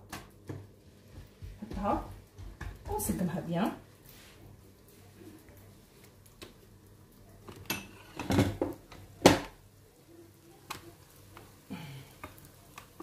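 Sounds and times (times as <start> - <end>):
knocks and clatters in kitchen: 0.0 - 3.8, 7.4 - 9.6.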